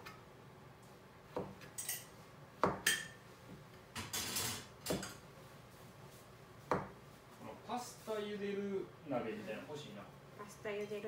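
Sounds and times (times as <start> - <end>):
knife knocking on cutting board: 6.7 - 7.0.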